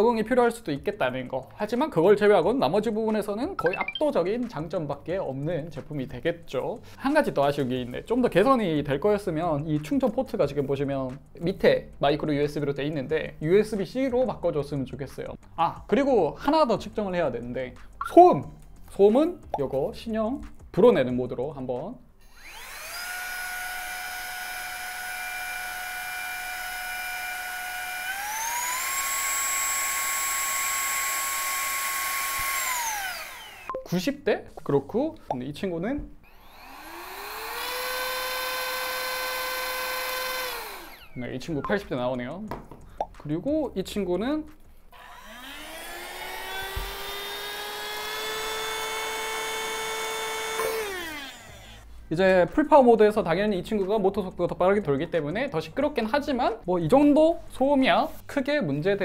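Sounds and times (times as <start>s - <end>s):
leaf blower motor whining: 22.3s - 33.7s, 36.2s - 41.3s, 45.0s - 51.9s.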